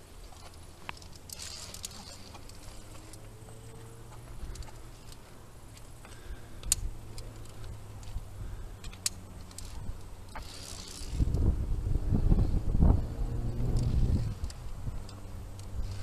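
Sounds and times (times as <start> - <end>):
camera rustling: 0.0 - 11.6
carabiners clicking on steel cable: 0.0 - 11.6, 13.0 - 16.0
wind buffeting microphone: 9.7 - 16.0.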